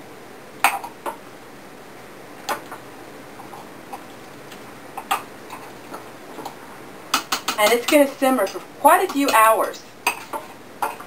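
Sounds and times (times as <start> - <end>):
spoon knocking against pot: 7.1 - 9.5.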